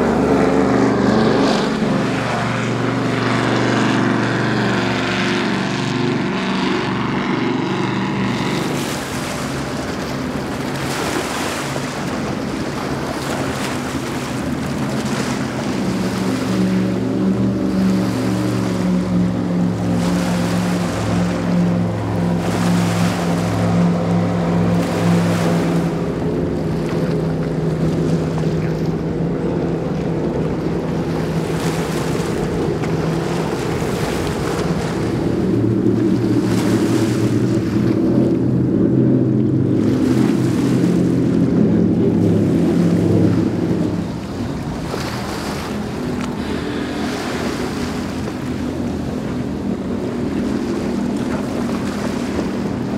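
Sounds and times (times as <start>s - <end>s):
powerboat engines droning: 0.0s - 52.9s
rushing water and spray: 0.0s - 52.9s.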